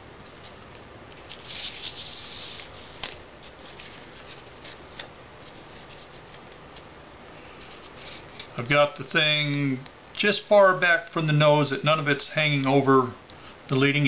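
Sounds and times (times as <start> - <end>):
paper rustling and crinkling: 0.2 - 9.0.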